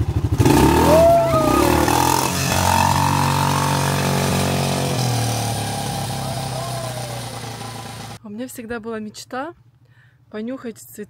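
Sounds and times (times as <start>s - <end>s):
quad bike engine revving: 0.0s - 8.2s.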